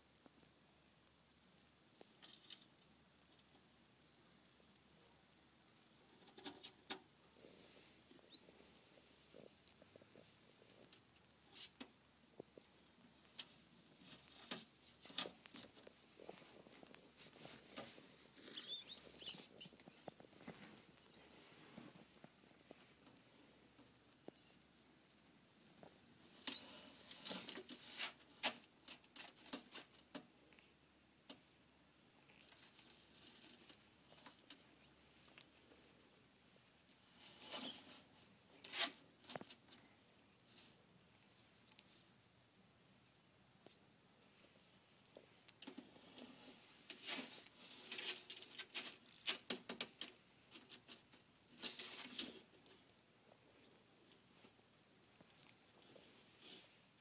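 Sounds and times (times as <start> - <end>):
lizard claws clicking and scraping: 2.1 - 2.9, 6.1 - 7.1, 45.6 - 52.8.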